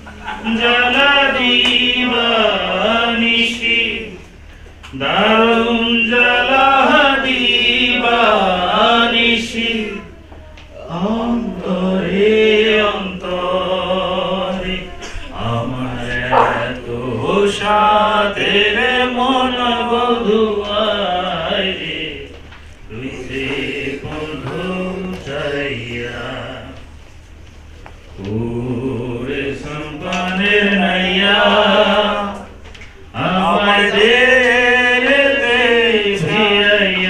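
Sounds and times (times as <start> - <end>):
man singing: 33.2 - 37.0.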